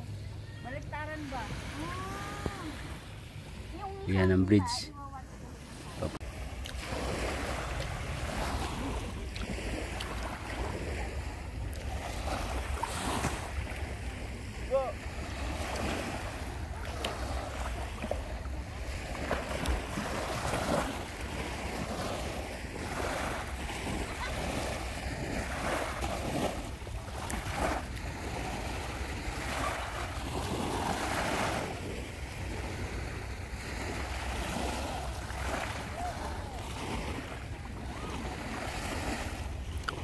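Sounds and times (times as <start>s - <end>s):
small waves lapping on beach: 0.0s - 40.0s.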